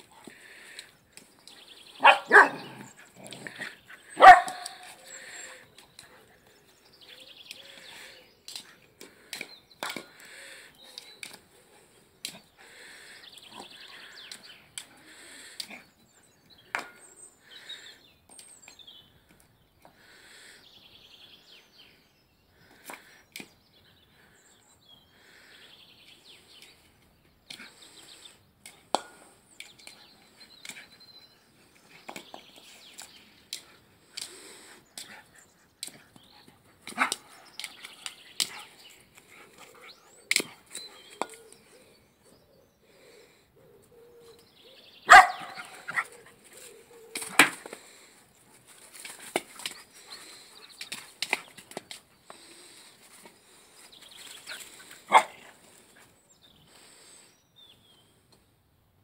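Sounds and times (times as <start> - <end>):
dog barking: 2.0 - 2.8, 4.2 - 4.8, 45.1 - 45.6, 55.1 - 55.4.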